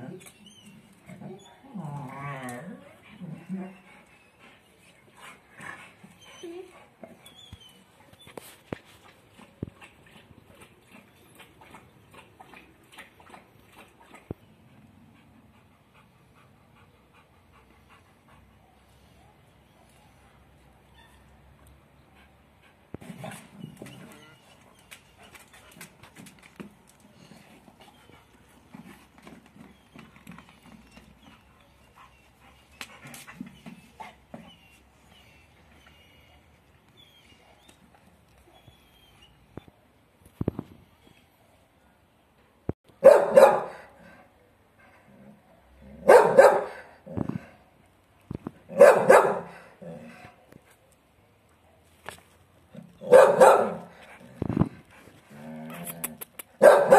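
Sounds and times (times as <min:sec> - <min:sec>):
dog barking: 0:43.0 - 0:43.9, 0:46.0 - 0:46.9, 0:48.7 - 0:49.6, 0:53.0 - 0:53.9, 0:56.6 - 0:56.9.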